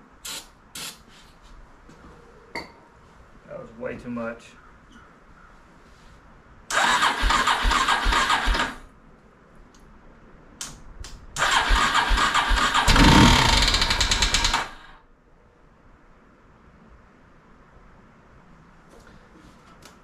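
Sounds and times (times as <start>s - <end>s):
engine electric starter cranking: 6.7s - 8.8s, 11.4s - 15.0s
heavy knocking thumps: 12.9s - 14.2s.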